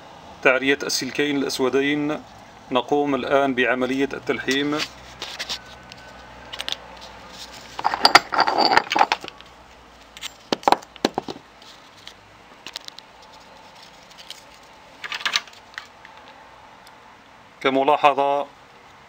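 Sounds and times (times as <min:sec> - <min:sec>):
objects rattling on a workbench: 0:07.4 - 0:09.4, 0:10.2 - 0:11.4, 0:13.8 - 0:15.9.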